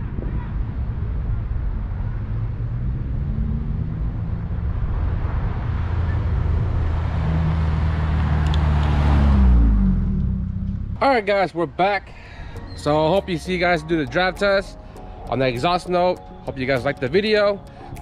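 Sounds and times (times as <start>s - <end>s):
car engine passing by: 0.7s - 11.0s.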